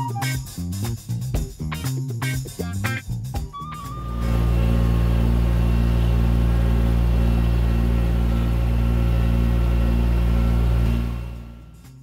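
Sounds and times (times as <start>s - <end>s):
tractor engine running: 3.7s - 12.0s.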